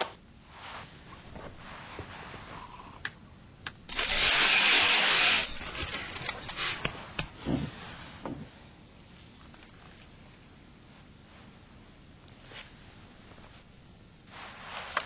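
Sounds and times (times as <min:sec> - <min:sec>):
scattered cracks and crackles: 0:03.0 - 0:07.4
loud rasping crunch: 0:03.9 - 0:06.9.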